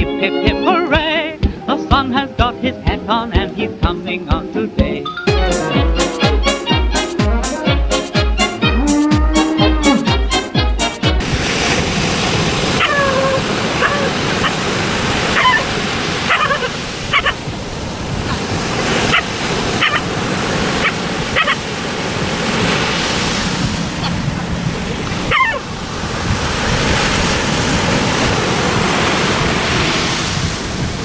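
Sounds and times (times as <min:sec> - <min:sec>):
surf breaking on a beach: 0:11.2 - 0:31.0
dog yelping barks: 0:12.8 - 0:14.6, 0:15.3 - 0:17.4, 0:19.1 - 0:20.1, 0:20.8 - 0:21.6, 0:25.2 - 0:25.7.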